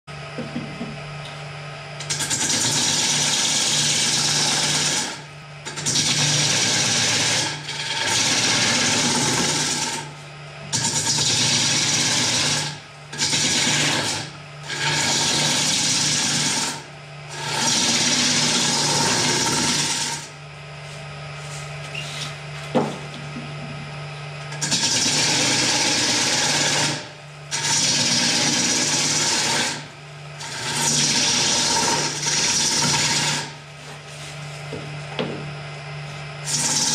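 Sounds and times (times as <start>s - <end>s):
turning tool cutting wood: 2.0s - 20.4s, 24.5s - 33.6s, 36.4s - 36.9s
lathe humming: 2.0s - 23.7s, 24.4s - 34.7s, 36.1s - 36.9s.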